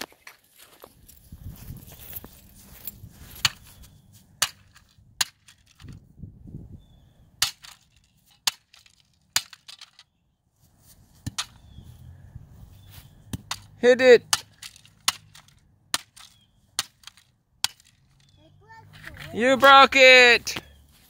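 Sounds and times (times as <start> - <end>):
bat cracking plastic toy: 7.4 - 10.1, 14.3 - 18.3.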